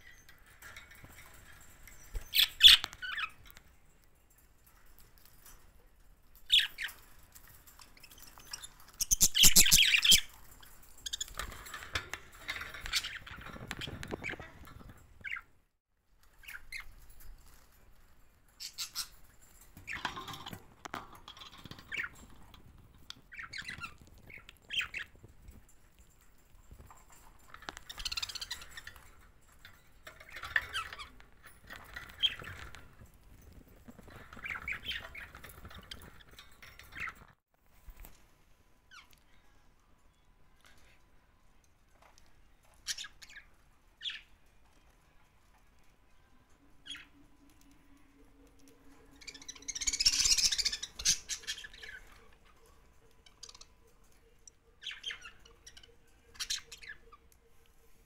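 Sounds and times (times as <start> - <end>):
budgerigars chirping and squawking: 8.1 - 10.3, 23.1 - 25.2, 49.2 - 52.6, 54.8 - 57.2.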